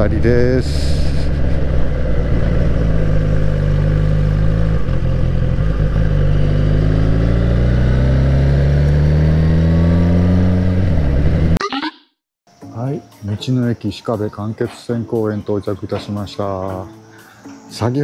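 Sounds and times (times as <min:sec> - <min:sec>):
motorcycle engine accelerating: 0:00.0 - 0:11.6.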